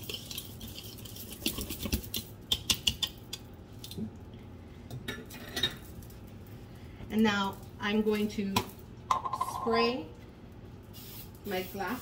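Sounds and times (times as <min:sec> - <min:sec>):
whisk tapping a bowl: 0:00.0 - 0:03.5.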